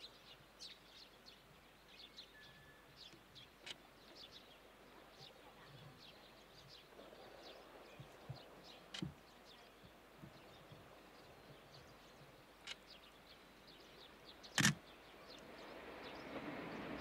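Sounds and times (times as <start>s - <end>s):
freight train rumble: 14.1s - 17.0s.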